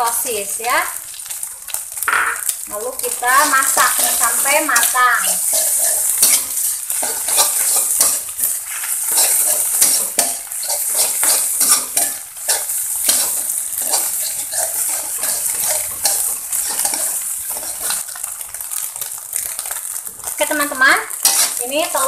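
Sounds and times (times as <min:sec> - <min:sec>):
food sizzling in hot oil: 0:00.0 - 0:22.0
metal spatula scraping a wok: 0:03.0 - 0:18.4, 0:21.1 - 0:21.7.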